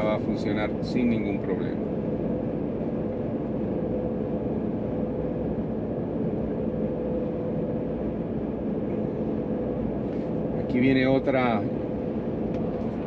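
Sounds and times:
road and tyre noise: 0.0 - 13.0
steady hum: 0.0 - 13.0.

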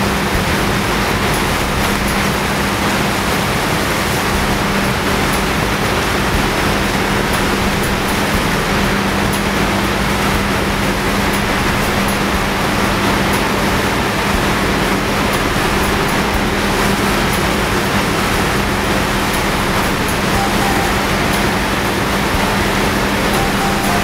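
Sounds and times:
water pouring over spillway: 0.0 - 24.0.

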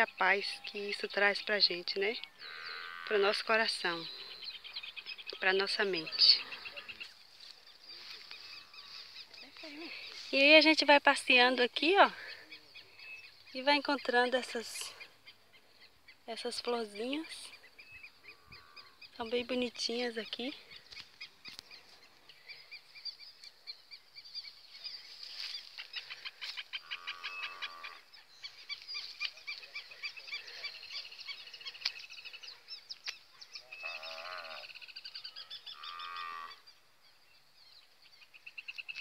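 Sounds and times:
cattle lowing: 2.4 - 3.3, 26.0 - 28.1.

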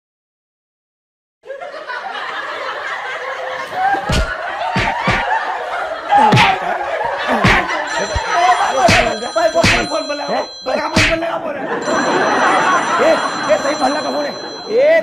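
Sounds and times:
people laughing and snickering: 1.5 - 14.8
sharp smacks: 4.1 - 5.3, 7.4 - 7.7, 11.0 - 11.2.

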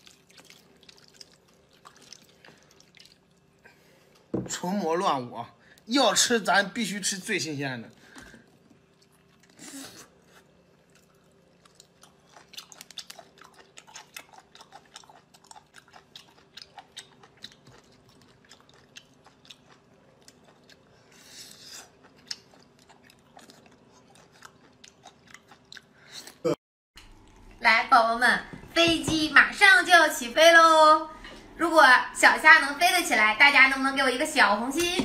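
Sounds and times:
chewing and wet mouth sounds: 0.0 - 4.3, 7.9 - 26.4.

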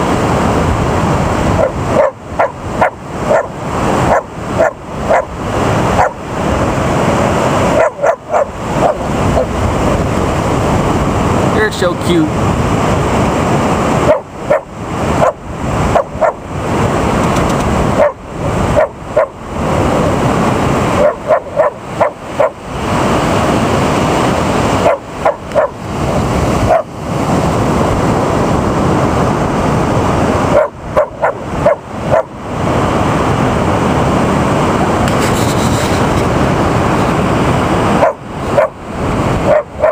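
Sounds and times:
surf rushing: 0.0 - 39.9
wind: 0.0 - 39.9
dog barking: 1.6 - 6.2, 7.7 - 9.5, 14.0 - 16.4, 18.0 - 19.4, 21.0 - 22.6, 24.8 - 25.8, 26.6 - 26.9, 30.5 - 32.4, 38.0 - 38.8, 39.4 - 39.9.

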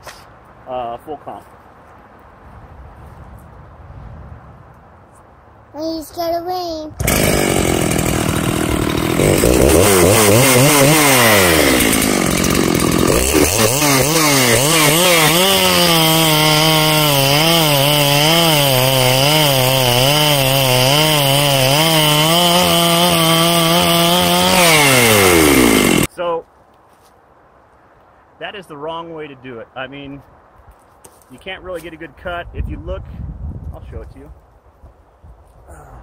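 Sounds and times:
chainsaw cutting log: 7.0 - 26.1.

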